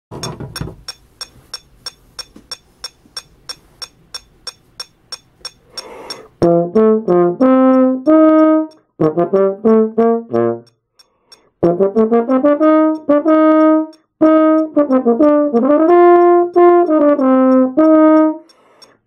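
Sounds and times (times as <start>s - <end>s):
metronome clicking: 0.2s - 19.0s
quick breath: 5.6s - 6.4s, 11.0s - 11.6s, 18.4s - 19.0s
brass horn playing: 6.4s - 10.7s, 11.6s - 18.4s.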